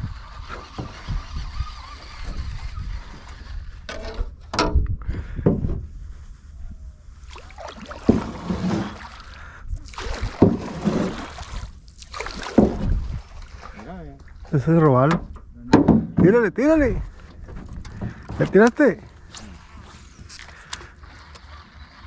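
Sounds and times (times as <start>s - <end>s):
paddle splashing in water: 7.2s - 14.5s.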